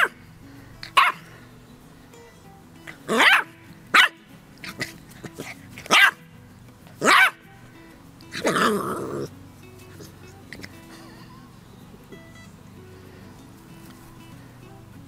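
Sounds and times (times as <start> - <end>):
puppy barking: 0.0 - 0.2, 0.8 - 1.3, 3.0 - 6.3, 7.0 - 7.4, 8.3 - 9.3
soft background music: 0.0 - 15.0.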